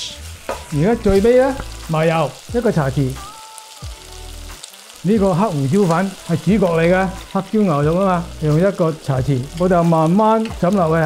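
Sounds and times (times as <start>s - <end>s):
food sizzling in a wok: 0.0s - 11.0s
man speaking: 0.7s - 3.2s, 5.0s - 11.0s.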